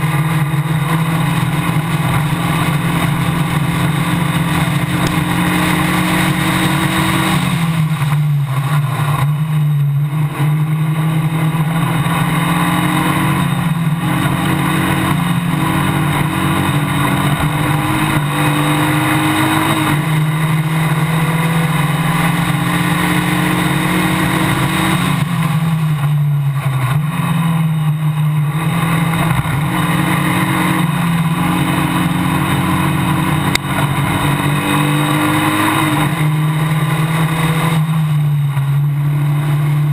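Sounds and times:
racing car engine at speed: 0.0s - 39.9s.

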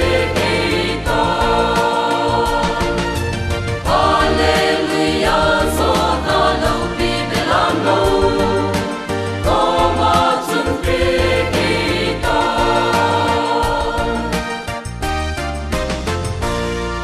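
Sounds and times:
mixed choir singing: 0.0s - 14.9s
instrumental backing with beat: 0.0s - 17.0s.

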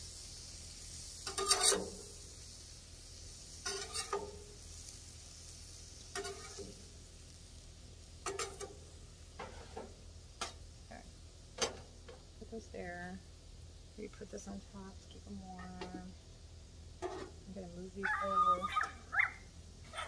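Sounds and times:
food sizzling faintly: 0.0s - 20.0s
tongs clacking on griddle: 0.8s - 2.4s, 3.5s - 5.0s, 5.6s - 7.4s, 8.1s - 10.6s.

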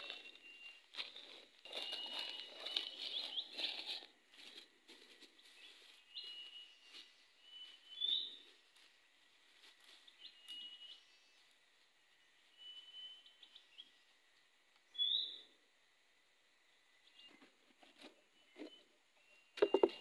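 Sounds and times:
footsteps crunching through dry leaves: 0.0s - 10.4s
short high chirping calls: 14.9s - 15.4s.

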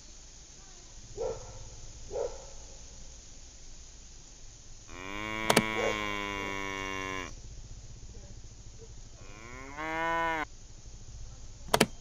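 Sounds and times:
cow mooing: 4.9s - 7.4s, 9.2s - 10.5s
sharp click: 5.5s - 5.7s, 11.7s - 12.0s.

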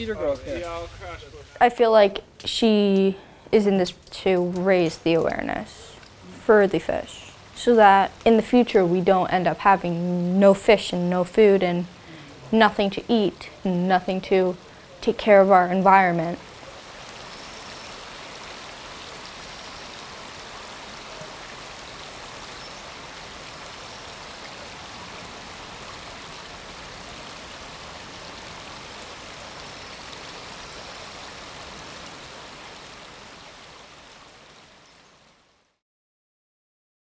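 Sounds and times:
creek water flowing: 0.0s - 35.8s.

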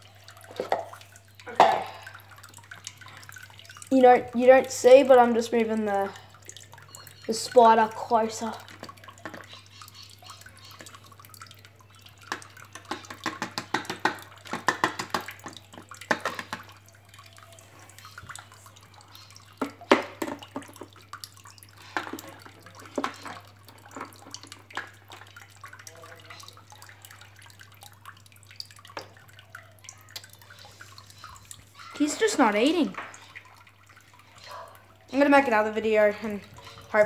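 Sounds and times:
small clicks and taps: 12.3s - 16.7s.

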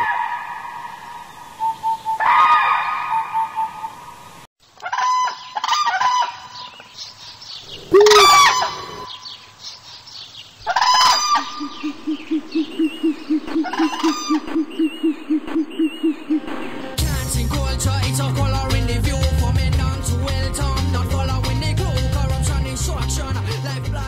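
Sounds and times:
chickens squawking and clucking: 7.7s - 9.3s, 10.6s - 16.9s
rooster crowing: 7.9s - 9.1s.

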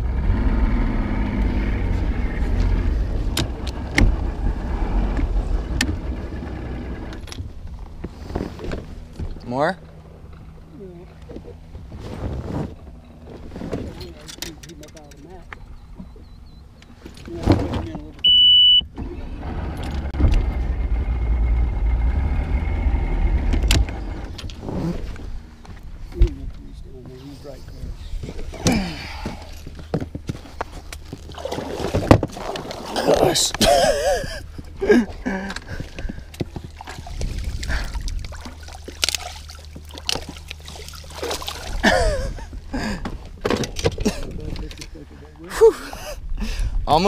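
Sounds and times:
outboard motor rumbling: 0.0s - 47.0s
water splashing and rustling: 0.9s - 16.2s, 23.4s - 46.2s
short high electronic beep: 18.2s - 18.8s
person grunting: 28.6s - 29.4s.

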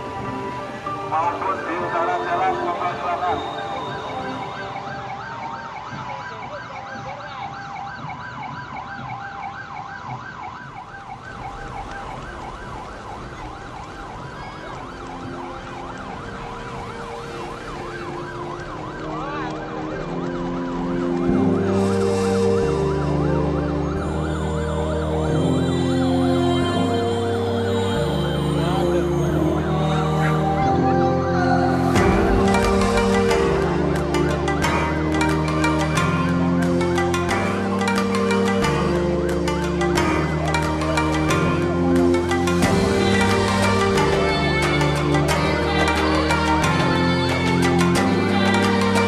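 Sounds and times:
emergency vehicle sirens: 0.0s - 49.0s
music with heavy bass: 21.1s - 49.0s.

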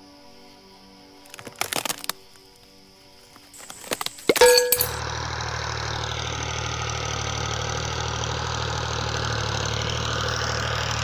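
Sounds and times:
tractor engine idling: 3.6s - 11.0s.

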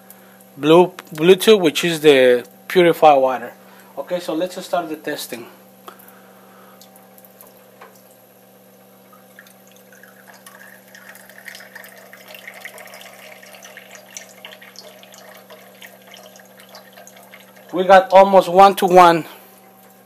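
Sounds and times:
pump humming: 2.2s - 20.0s
water trickling into glasses: 9.0s - 19.0s.

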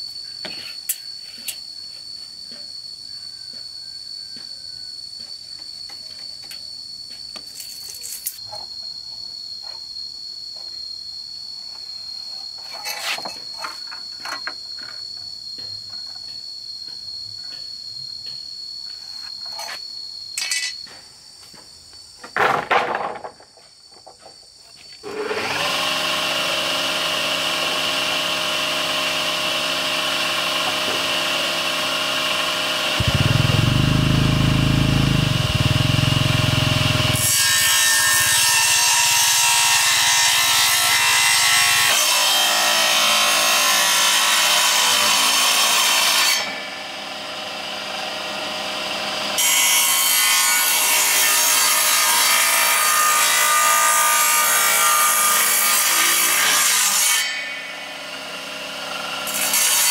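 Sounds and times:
circular saw ripping wood: 25.0s - 46.7s.

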